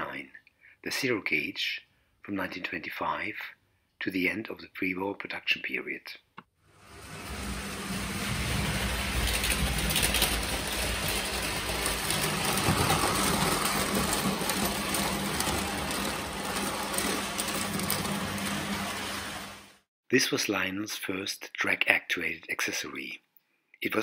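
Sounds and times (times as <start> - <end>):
toy train motor hum and rattle: 6.8 - 19.8.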